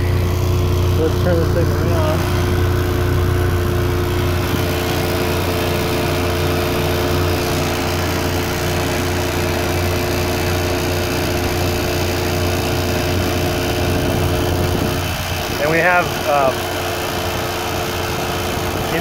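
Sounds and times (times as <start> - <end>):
electric boat motor humming: 0.0 - 19.0.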